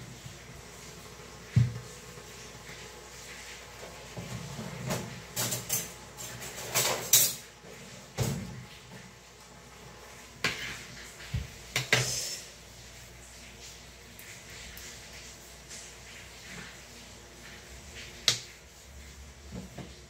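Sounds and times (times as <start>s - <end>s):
kitchen utensils knocking and clattering: 4.7s - 7.5s.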